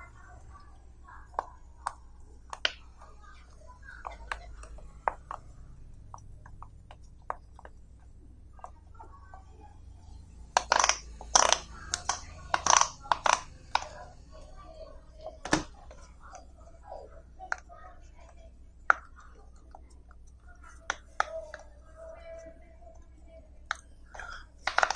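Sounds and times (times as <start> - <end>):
fidget toy bubbles popping: 10.6 - 14.2, 23.7 - 24.9.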